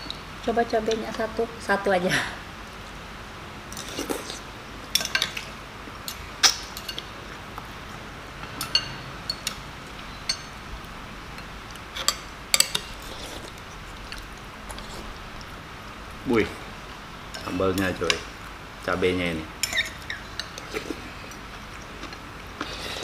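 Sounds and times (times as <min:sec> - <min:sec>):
cutlery clinking on ceramic bowls: 0:08.6 - 0:09.6, 0:19.6 - 0:20.8.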